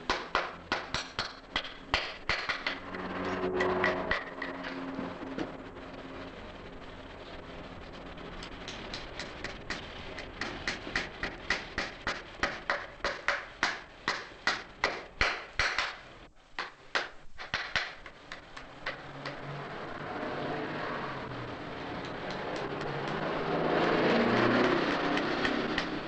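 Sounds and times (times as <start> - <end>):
hammer tapping nails into horseshoe: 0.1 - 2.8, 8.4 - 16.0, 16.6 - 19.4.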